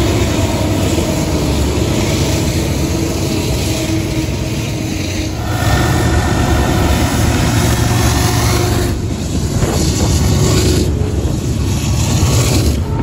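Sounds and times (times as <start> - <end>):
diesel locomotive rumble: 0.0 - 13.0.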